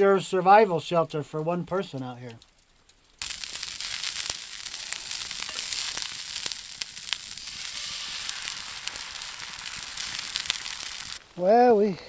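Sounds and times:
bacon and eggs sizzling: 0:02.4 - 0:11.9.

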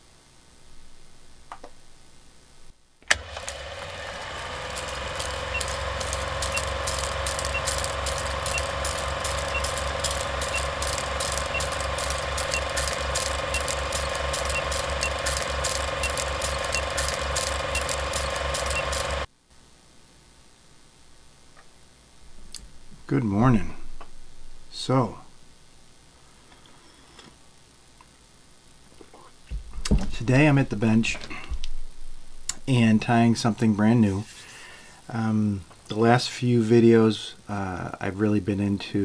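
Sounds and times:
steady engine-like running sound: 0:03.2 - 0:19.3.

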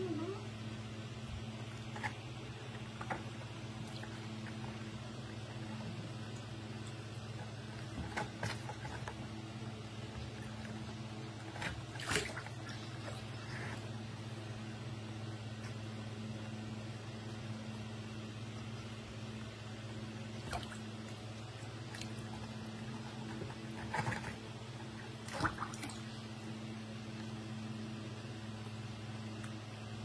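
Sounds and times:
low hum: 0:00.0 - 0:30.0
water sloshing and splashing: 0:01.6 - 0:13.9, 0:20.3 - 0:27.2.

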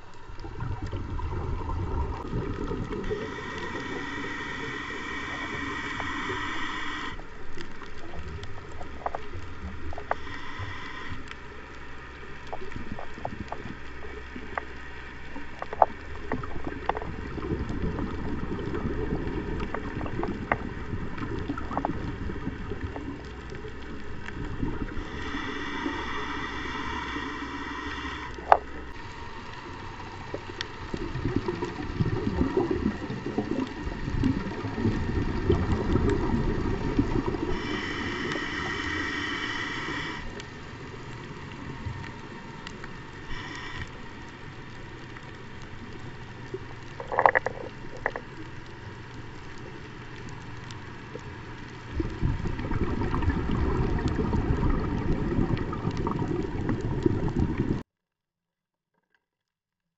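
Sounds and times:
bubbling exhaust underwater: 0:00.0 - 0:57.8
scuba regulator hissing inhalations: 0:03.0 - 0:07.3, 0:10.0 - 0:11.6, 0:24.9 - 0:29.0, 0:37.0 - 0:40.6, 0:43.2 - 0:44.2.

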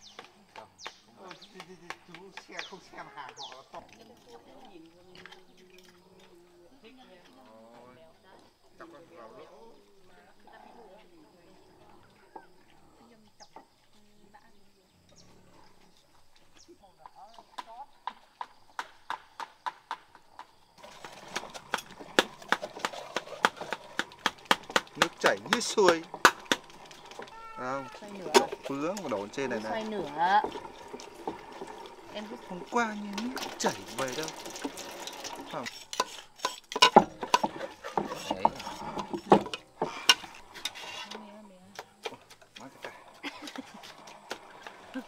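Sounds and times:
hard objects knocking and clicking: 0:18.1 - 0:27.5, 0:33.2 - 0:40.8
running liquid rushing: 0:20.8 - 0:41.1, 0:42.2 - 0:45.0.

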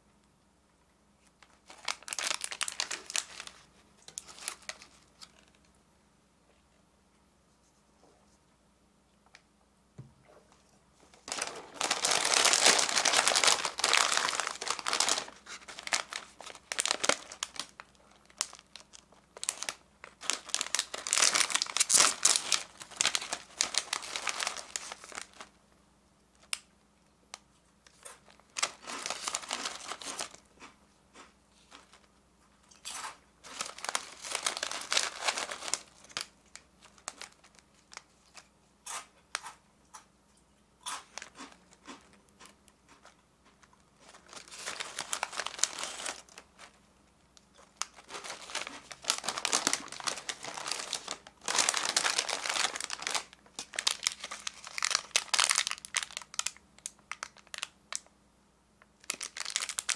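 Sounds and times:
snack wrappers crinkling: 0:01.2 - 0:05.7, 0:11.2 - 0:25.6, 0:27.3 - 0:32.1, 0:32.7 - 0:39.6, 0:40.8 - 0:46.8, 0:47.4 - 0:58.1, 0:58.9 - 0:59.9
foil bag tearing open: 0:01.6 - 0:05.4, 0:11.2 - 0:25.5, 0:28.2 - 0:30.4, 0:32.8 - 0:38.0, 0:44.0 - 0:46.7, 0:47.8 - 0:57.7, 0:59.0 - 0:59.9.

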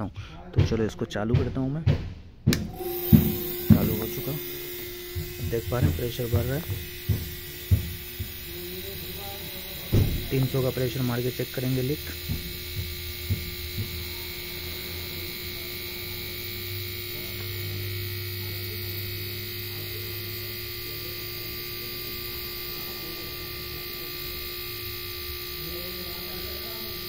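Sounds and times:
small electric motor humming: 0:02.6 - 0:27.0.

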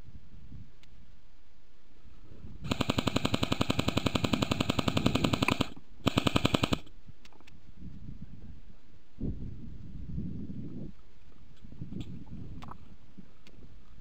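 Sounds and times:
airsoft rifle full auto bursts: 0:02.7 - 0:06.9.

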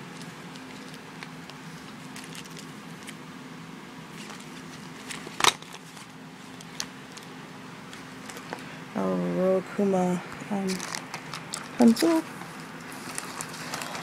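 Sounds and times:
plastic packaging crinkling: 0:00.0 - 0:03.2, 0:04.1 - 0:07.4, 0:10.6 - 0:12.2, 0:12.8 - 0:14.0
sharp plastic crackle: 0:00.0 - 0:03.2, 0:10.6 - 0:12.2, 0:12.9 - 0:14.0
steady low hum: 0:00.0 - 0:14.0.

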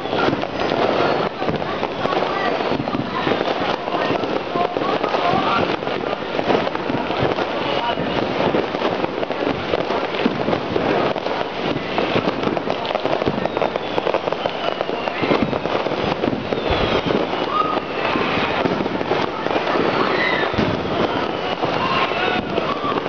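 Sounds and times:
falling firework whistles: 0:00.0 - 0:23.0
firecrackers crackling: 0:00.0 - 0:23.0.

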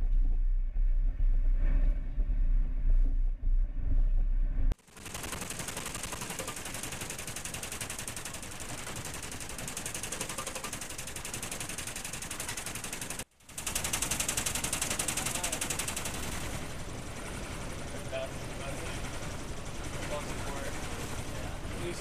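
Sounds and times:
low rumble: 0:00.0 - 0:04.8
rattling alarm pulses: 0:04.8 - 0:21.4.

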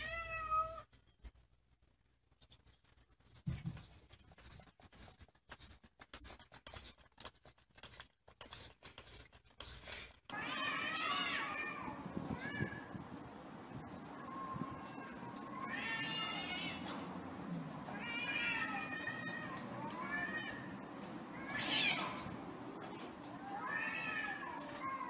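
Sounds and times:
cat meowing: 0:00.0 - 0:00.9.

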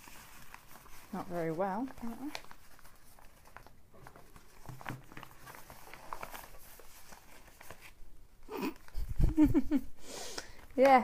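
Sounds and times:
fabric mat rustling: 0:00.0 - 0:08.0.

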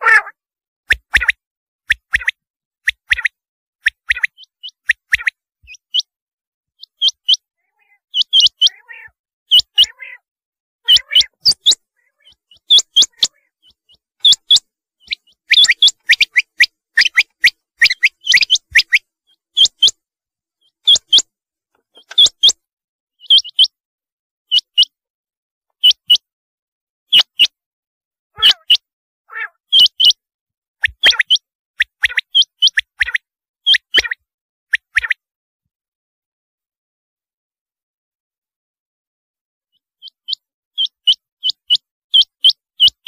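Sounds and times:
quail calling: 0:00.0 - 0:06.1, 0:06.8 - 0:20.0, 0:20.7 - 0:21.3, 0:21.9 - 0:22.6, 0:23.2 - 0:23.7, 0:28.4 - 0:30.2, 0:30.8 - 0:34.2.

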